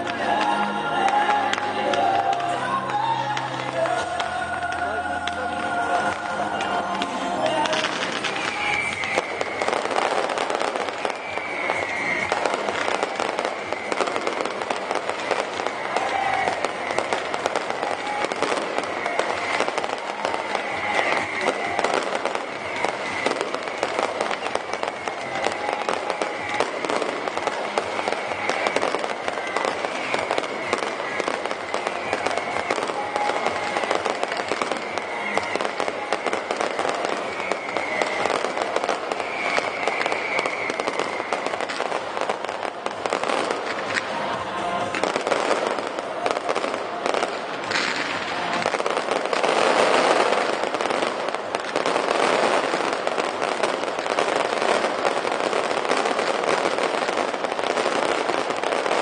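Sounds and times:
fireworks crackling and popping: 0.0s - 59.0s.

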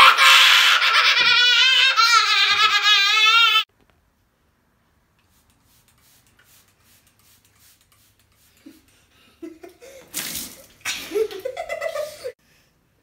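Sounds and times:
children laughing: 0.0s - 3.7s, 10.8s - 12.4s
spray bottle spritzes: 5.2s - 8.8s
water splashing: 10.0s - 11.7s.

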